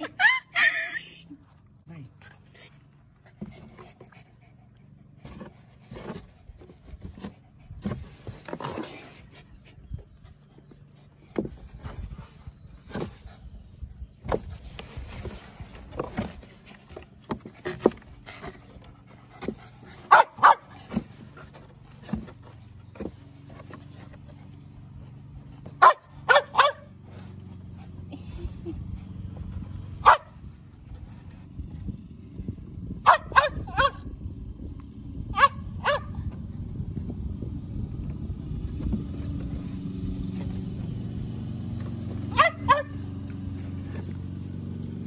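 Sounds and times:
knocks and scrapes on cardboard box: 5.2 - 9.4, 14.2 - 24.2
dogs barking: 20.0 - 20.9, 25.7 - 27.0, 30.0 - 30.4, 33.0 - 34.1, 35.3 - 36.3, 42.2 - 43.2.

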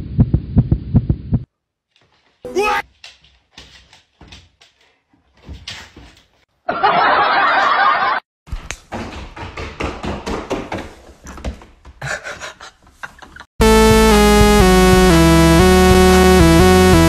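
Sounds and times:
goat hooves clattering on hardwood: 8.6 - 12.0.

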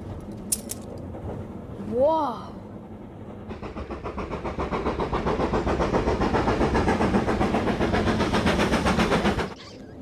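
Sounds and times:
steam locomotive chuffing: 2.6 - 9.6.

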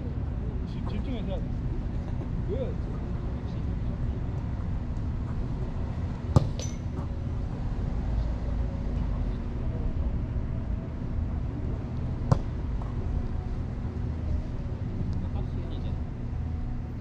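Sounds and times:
ball being kicked: 6.3 - 7.1, 12.2 - 12.5.

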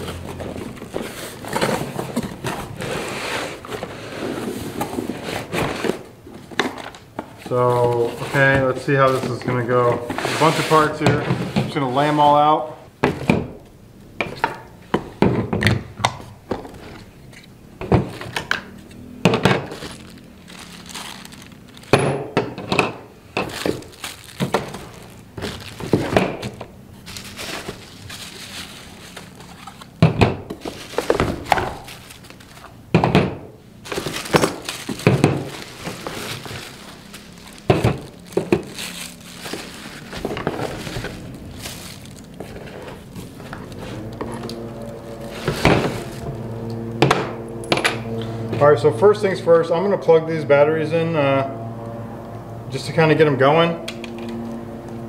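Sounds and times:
rustling plastic bags: 0.0 - 11.1, 16.5 - 22.4, 23.1 - 32.9, 33.7 - 48.5.

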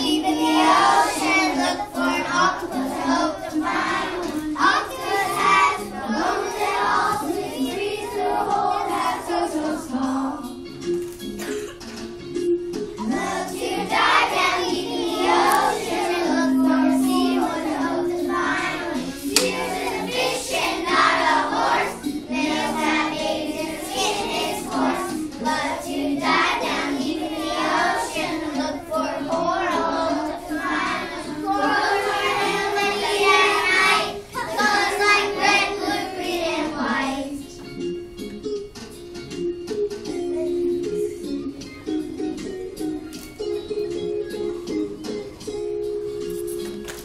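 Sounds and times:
children singing in unison: 0.0 - 10.5, 13.0 - 37.4
instrumental accompaniment: 8.6 - 36.7.

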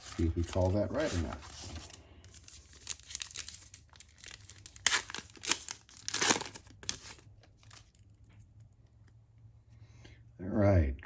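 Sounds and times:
foil pack tearing and crinkling: 0.0 - 7.9.

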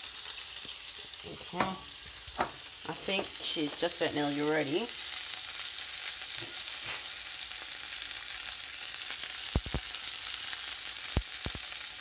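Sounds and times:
fish frying in hot oil: 0.0 - 12.0
soft knocks: 2.4 - 3.5.

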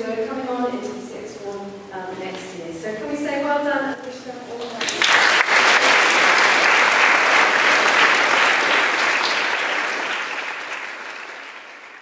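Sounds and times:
crowd applauding: 4.6 - 12.0.

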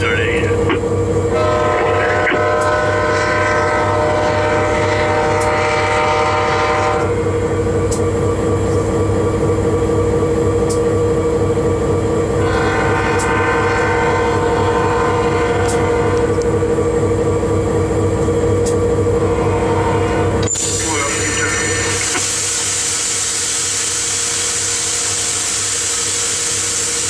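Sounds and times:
locomotive engine drone: 0.0 - 27.0
locomotive air horn blasts: 1.3 - 7.2, 12.4 - 16.4, 19.3 - 20.4.

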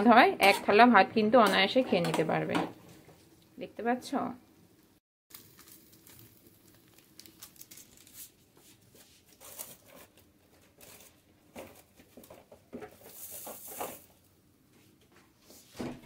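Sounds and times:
plastic sachet rustling: 5.3 - 8.4.

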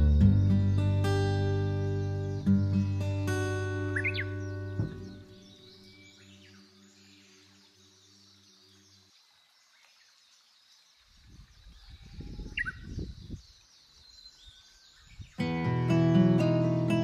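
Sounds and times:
small birds chirping: 0.0 - 17.0
wind buffeting microphone: 11.2 - 13.6.

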